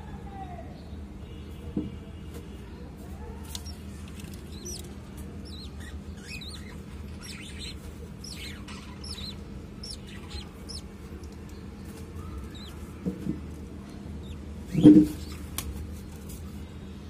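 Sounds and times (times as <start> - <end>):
steady low hum: 3.5 - 16.0
budgerigars chirping: 3.6 - 10.9, 12.4 - 12.8, 14.2 - 15.3.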